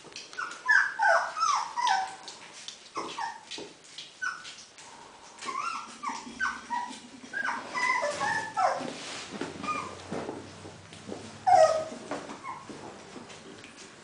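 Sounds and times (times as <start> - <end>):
puppies whimpering and yipping: 0.3 - 2.3, 3.0 - 3.6, 4.2 - 4.6, 5.4 - 10.1, 11.4 - 13.0.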